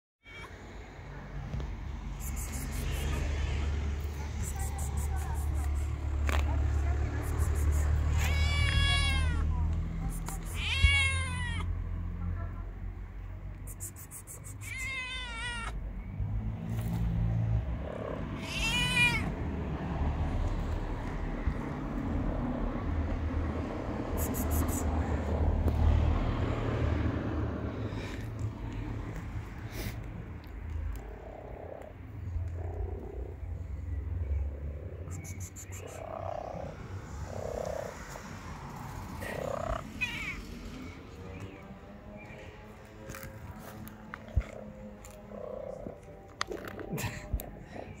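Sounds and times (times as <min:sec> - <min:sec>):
kitten meowing: 0:08.0 - 0:09.6, 0:10.3 - 0:11.7, 0:14.4 - 0:15.8, 0:18.4 - 0:19.3, 0:40.0 - 0:40.4.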